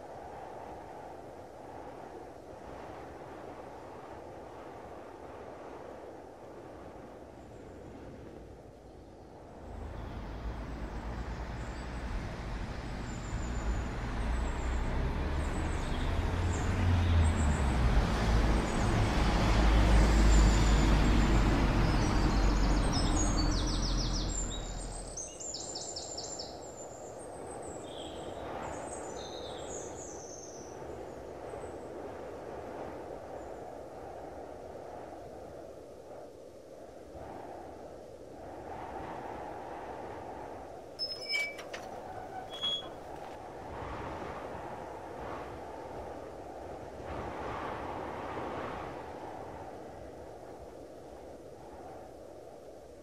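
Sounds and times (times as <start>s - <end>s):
passing vehicle rumble: 9.6s - 25.2s
birds chirping: 41.0s - 43.3s.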